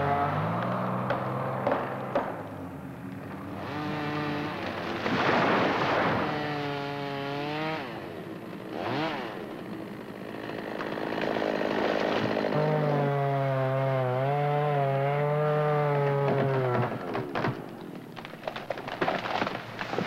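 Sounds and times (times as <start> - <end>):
chainsaw revving: 3.5 - 17.1
tree crashing down: 3.8 - 7.7, 10.2 - 13.4, 15.7 - 20.0.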